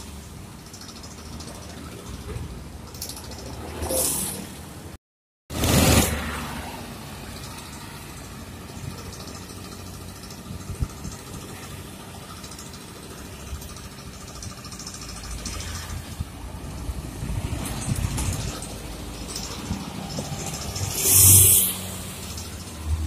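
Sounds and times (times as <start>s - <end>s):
motorcycles passing: 5.6s - 23.0s
truck diesel engine rumble: 5.6s - 23.0s.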